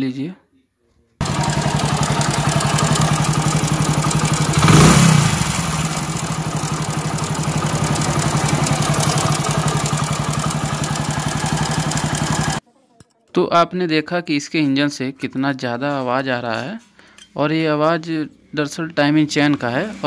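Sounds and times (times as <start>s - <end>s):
motorcycle engine idling: 1.2s - 12.6s.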